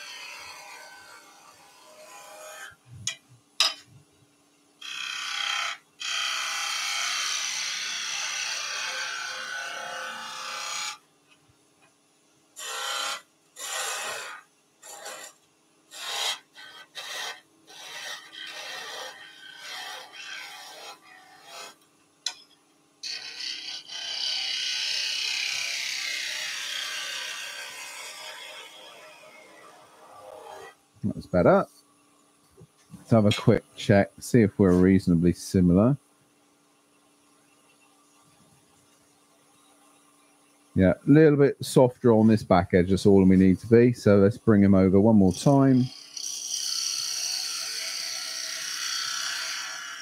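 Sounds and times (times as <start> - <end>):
turning tool cutting wood on lathe: 4.8 - 11.0, 12.6 - 21.8, 23.0 - 30.7, 45.7 - 50.0.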